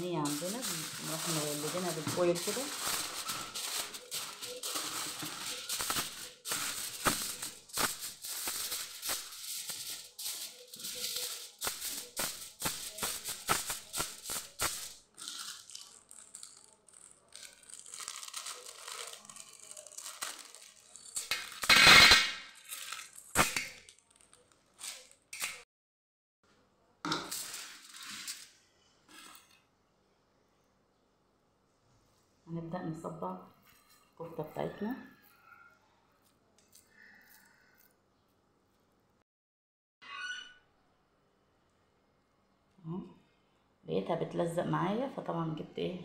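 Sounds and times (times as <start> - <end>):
aluminium foil crinkling: 0.0 - 25.6, 27.3 - 28.6.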